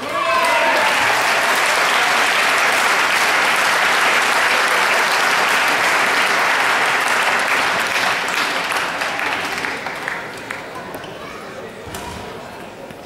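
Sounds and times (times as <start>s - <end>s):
spectators applauding: 0.0s - 10.8s.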